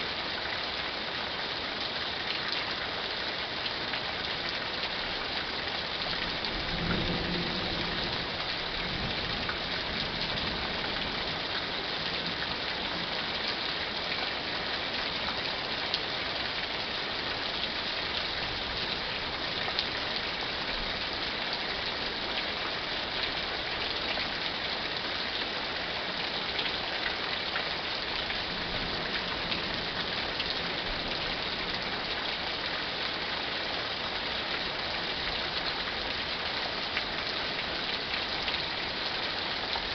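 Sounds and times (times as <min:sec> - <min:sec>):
steady rain falling: 0:00.0 - 0:39.9
low thunder rumble: 0:06.5 - 0:11.3.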